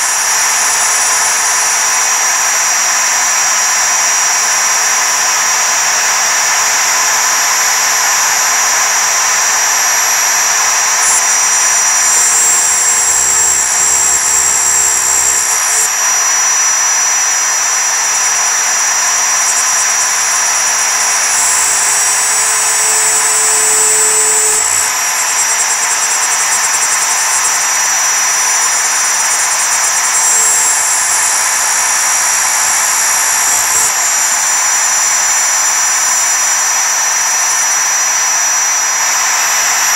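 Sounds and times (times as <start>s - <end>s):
spindle high whine: 0.0s - 39.9s
cutter chattering on metal: 11.1s - 15.9s, 19.0s - 27.9s.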